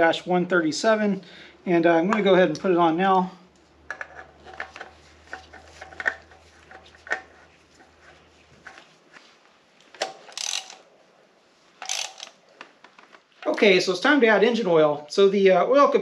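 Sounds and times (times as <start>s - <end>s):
tool clicks and knocks: 10.0s - 10.8s, 11.8s - 12.4s
ratchet wrench ratcheting: 10.3s - 10.8s, 11.8s - 12.4s.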